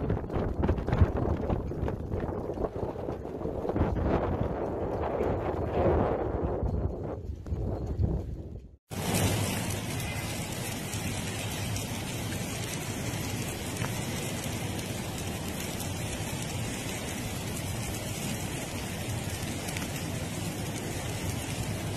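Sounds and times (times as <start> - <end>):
hiss of wintry precipitation: 8.9 - 21.9.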